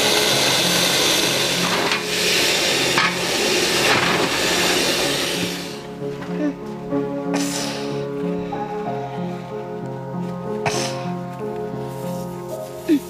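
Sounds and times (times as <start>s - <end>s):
steam hissing: 0.0s - 6.0s
background music: 0.0s - 13.0s.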